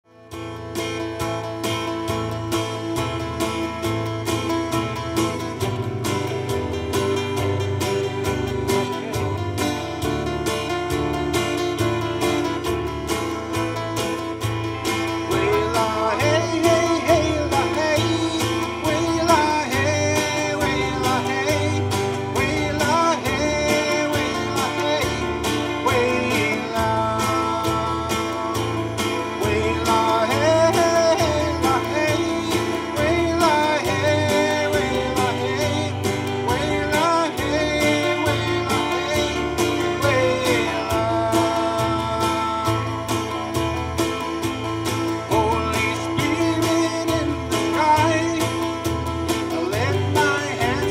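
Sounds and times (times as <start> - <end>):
acoustic guitar strumming: 0.0 - 50.9
band accompaniment: 0.1 - 50.9
low bass notes: 0.1 - 50.9
man singing gospel song: 15.0 - 43.6, 45.0 - 50.9.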